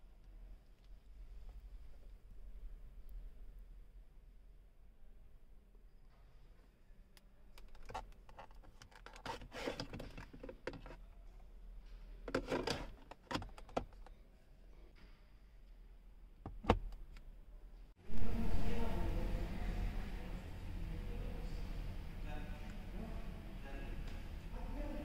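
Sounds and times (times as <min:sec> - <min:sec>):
armrest lid knocking shut: 0:16.5 - 0:16.9.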